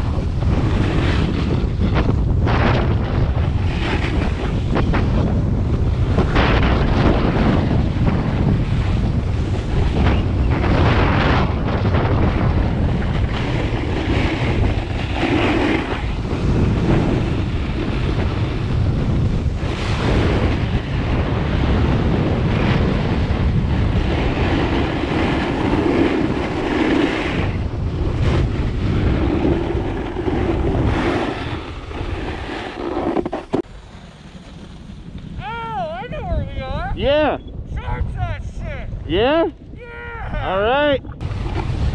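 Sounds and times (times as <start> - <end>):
wind rushing over microphone: 0.0 - 41.9
ski edges scraping snow: 3.4 - 5.2, 13.1 - 18.1, 24.0 - 35.0.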